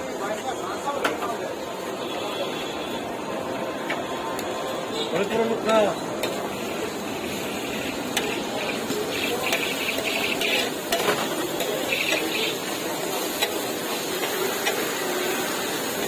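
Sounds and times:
food sizzling on griddle: 0:05.6 - 0:16.0
spatula clacking on griddle: 0:08.0 - 0:12.6, 0:13.3 - 0:13.6.

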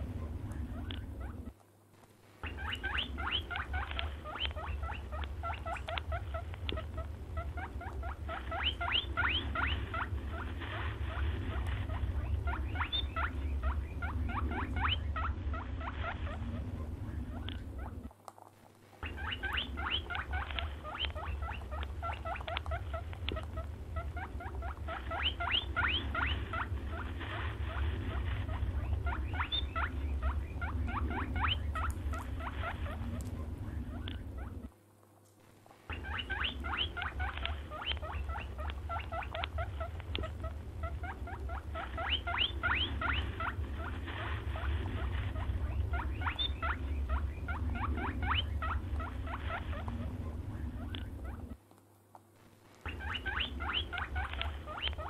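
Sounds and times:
low steady hum: 0:00.0 - 0:55.0
rapid high squeaks and chitters: 0:02.4 - 0:16.6, 0:19.0 - 0:33.2, 0:35.9 - 0:51.6.

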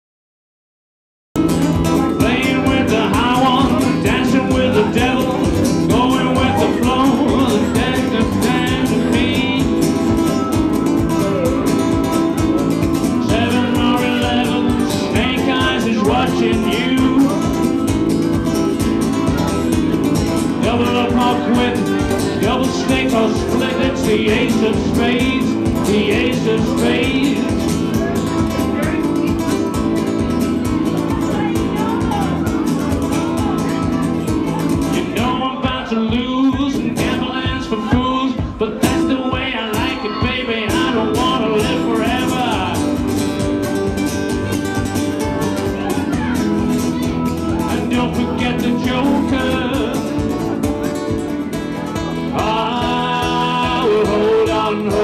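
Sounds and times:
nylon-string guitar strumming: 0:01.4 - 0:55.0
wooden stomp box beat: 0:34.3 - 0:45.9.

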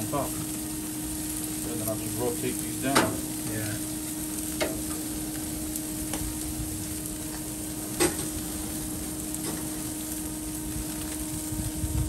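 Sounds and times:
meat sizzling on a grill: 0:00.0 - 0:12.0.

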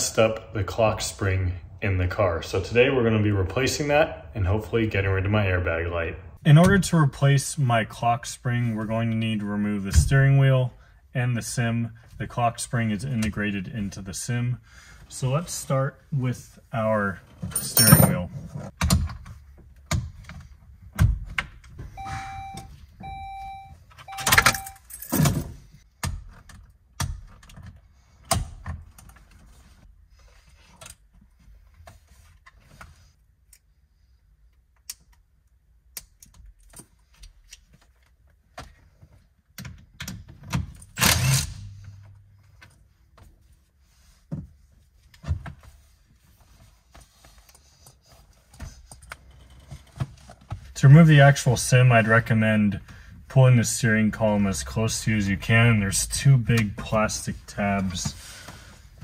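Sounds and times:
short electronic beeps: 0:22.0 - 0:24.8.

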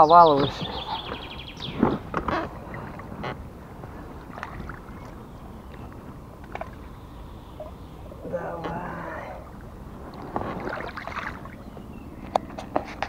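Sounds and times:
low rumble of wind and water: 0:00.0 - 0:13.0
knocks and clicks of gear: 0:01.1 - 0:03.4.

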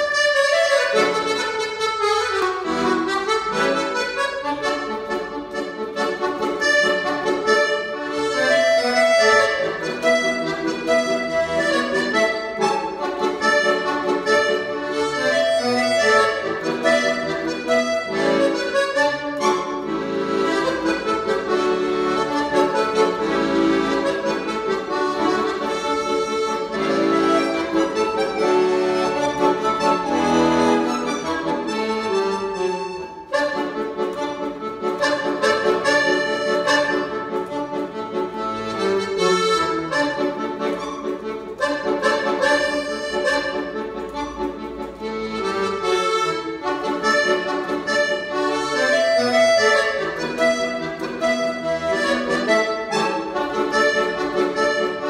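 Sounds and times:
accordion playing: 0:00.0 - 0:55.0.

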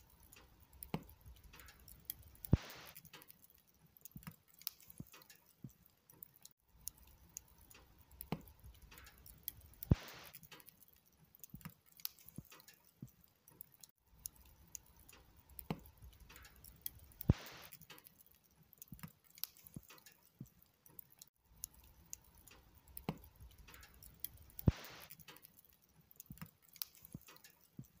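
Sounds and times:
log fire crackling: 0:00.0 - 0:28.0
sharp fire pops: 0:00.3 - 0:03.4, 0:08.2 - 0:10.7, 0:15.6 - 0:18.1, 0:23.0 - 0:25.6.

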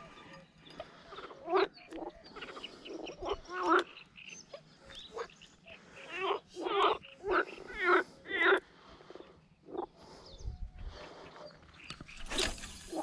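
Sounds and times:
frogs croaking: 0:00.0 - 0:10.4.

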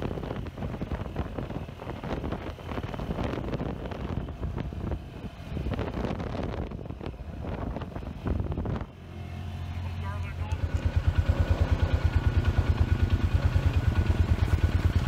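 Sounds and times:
wind buffeting microphone: 0:00.0 - 0:09.1
engine and tyres rumbling: 0:00.0 - 0:15.0
vehicle jolts and rattles: 0:00.0 - 0:15.0.

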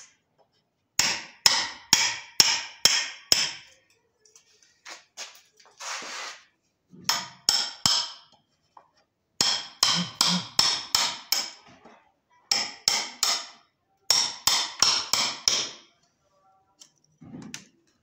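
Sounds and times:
hammer blows on chisel: 0:09.5 - 0:10.8.

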